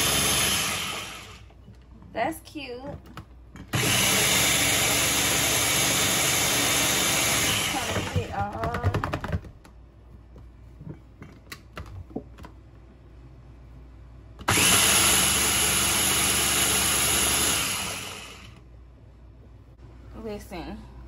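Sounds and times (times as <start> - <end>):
electric kitchen mixer running: 0.0 - 1.5, 3.7 - 8.3, 14.4 - 18.6.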